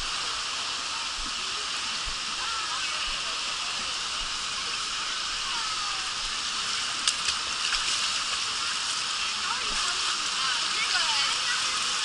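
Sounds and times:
water rushing down a channel: 0:00.0 - 0:12.0
sharp splashes: 0:06.8 - 0:12.0.

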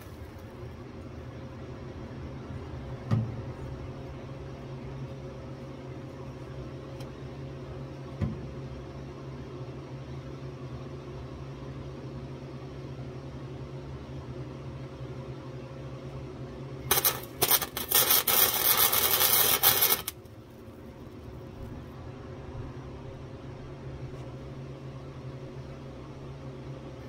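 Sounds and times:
welder arc crackling on sheet steel: 0:00.0 - 0:00.5, 0:16.9 - 0:20.4
steady low hum: 0:00.0 - 0:27.0.

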